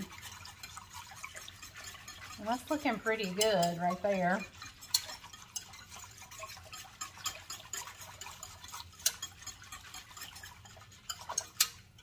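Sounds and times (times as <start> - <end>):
whisk ticking against metal pot: 0.0 - 12.0.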